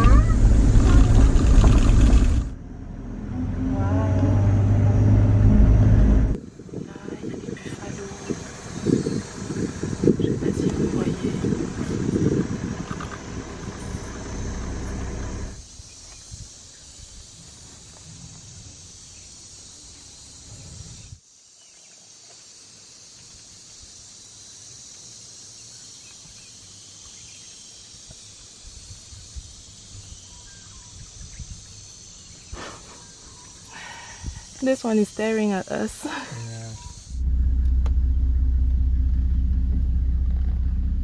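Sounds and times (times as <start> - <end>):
low rumble: 0.0 - 6.4, 8.3 - 15.6, 37.1 - 41.0.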